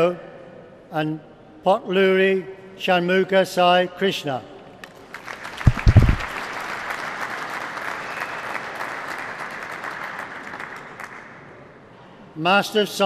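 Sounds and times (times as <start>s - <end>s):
audience applauding: 5.1s - 11.2s
loud low thump: 5.7s - 6.3s.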